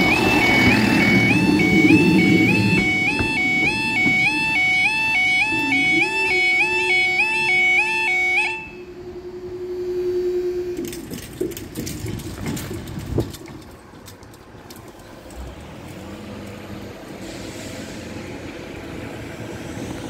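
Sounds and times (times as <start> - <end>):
vehicle rumble: 0.0 - 7.0, 8.7 - 20.0
level crossing alarm tone: 0.0 - 11.0
barriers clicking and knocking: 10.8 - 15.7.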